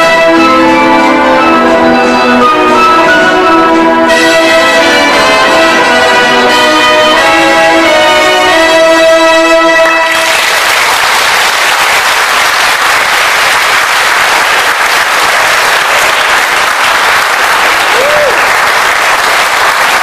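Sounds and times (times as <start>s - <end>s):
audience applause: 9.8s - 20.0s.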